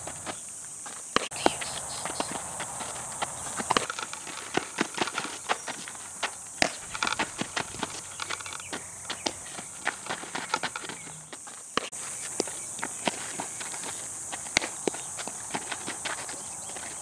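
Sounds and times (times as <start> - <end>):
footsteps scuffing on dirt: 0.0 - 17.0
ball popping into leather gloves: 6.6 - 9.4.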